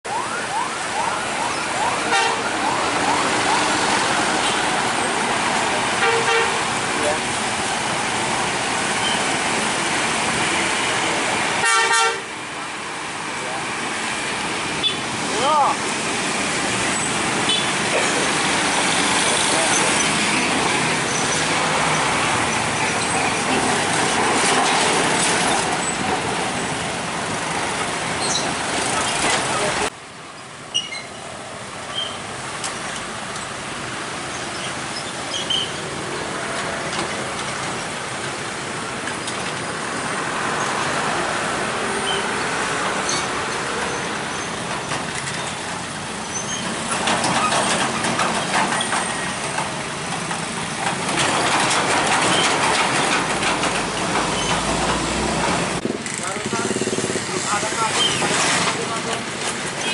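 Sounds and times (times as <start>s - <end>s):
road traffic engine and tyre noise: 0.0s - 59.9s
horn toot: 2.1s - 2.5s, 6.0s - 6.6s, 11.6s - 12.3s
heavy truck passing: 32.3s - 59.8s.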